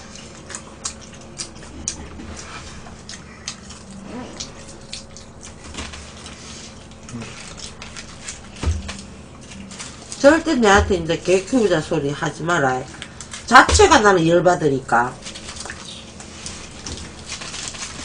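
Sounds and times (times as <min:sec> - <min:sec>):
chewing fried chicken: 0:00.0 - 0:10.5, 0:12.8 - 0:13.5, 0:15.2 - 0:18.0.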